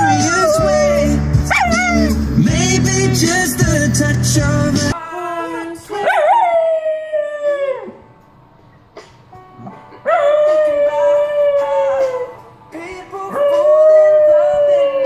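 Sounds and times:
dog howling: 0.0s - 2.2s, 6.0s - 8.0s, 10.0s - 12.4s, 13.3s - 15.0s
loud pop music: 0.0s - 7.0s, 9.9s - 15.0s.

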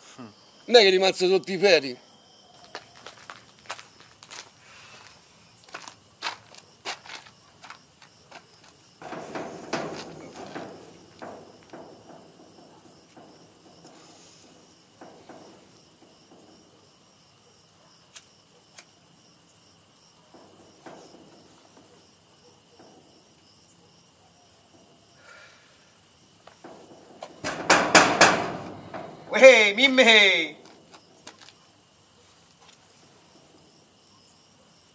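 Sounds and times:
crickets chirping: 0.0s - 34.9s.

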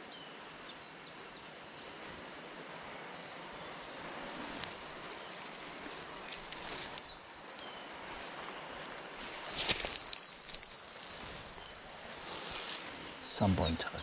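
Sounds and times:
small metal bell ringing: 7.0s - 7.6s, 9.6s - 12.6s.

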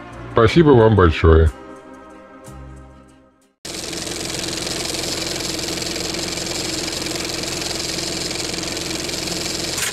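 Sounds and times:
film projector whirring clatter: 3.7s - 9.9s.

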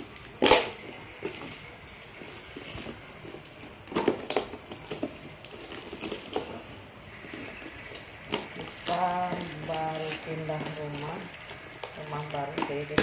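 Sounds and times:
plastic parcel rustling: 0.0s - 13.0s.

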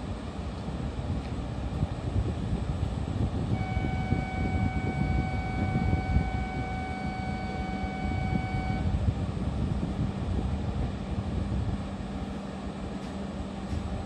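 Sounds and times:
electronic warning tone: 3.6s - 8.9s.

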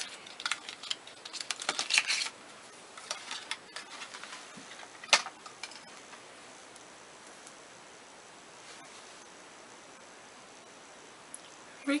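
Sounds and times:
packaging clicks and rustles: 0.0s - 2.4s, 3.0s - 5.9s.

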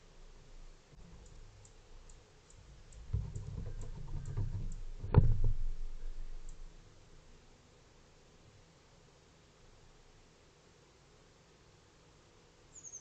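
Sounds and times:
squirrel scuffling and bumping: 2.8s - 6.7s.

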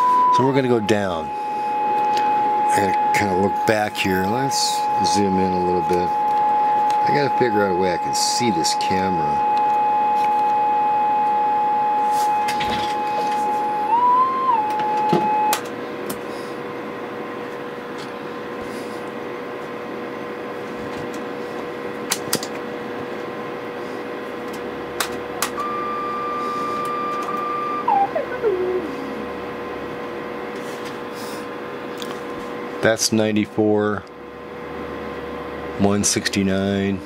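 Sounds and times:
steady test tone: 0.0s - 15.6s
faint steady hum: 0.0s - 37.0s
higher tone gliding down: 27.3s - 29.3s.

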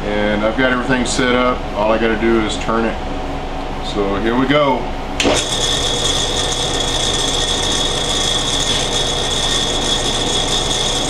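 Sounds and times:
metal lathe grinding and whining: 5.2s - 11.0s.

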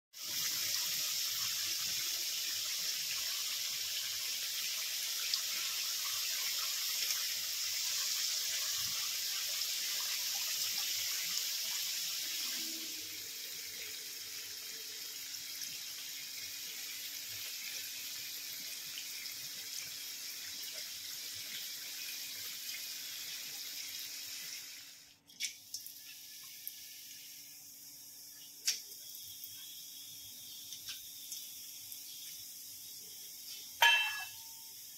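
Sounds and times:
tap water running into sink: 30.4s - 34.4s.

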